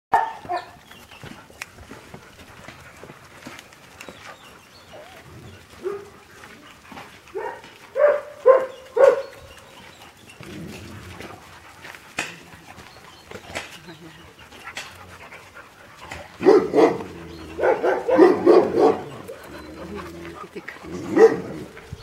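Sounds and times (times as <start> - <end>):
dogs barking: 0.1 - 0.8, 4.9 - 9.8, 13.6 - 21.9.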